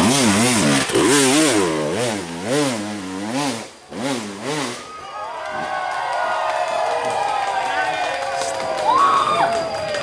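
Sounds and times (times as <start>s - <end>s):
dirt bike engine revving: 0.0s - 4.9s.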